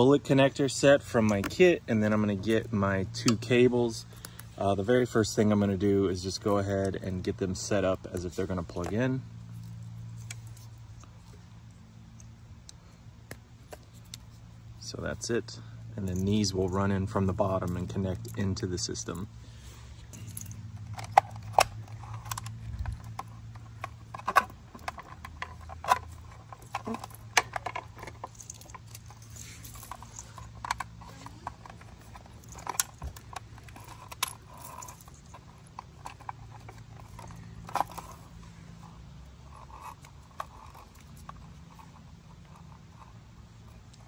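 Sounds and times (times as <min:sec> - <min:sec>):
faint low hum: 0:00.0 - 0:44.0
wiring connectors clicking and rattling: 0:20.1 - 0:44.0.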